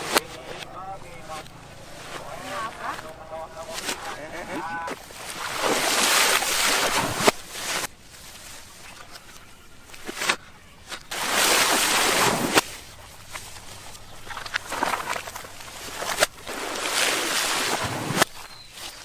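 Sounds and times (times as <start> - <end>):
sharp cracks: 0.0 - 9.3
coconuts splashing into water: 4.9 - 8.0, 10.0 - 18.7.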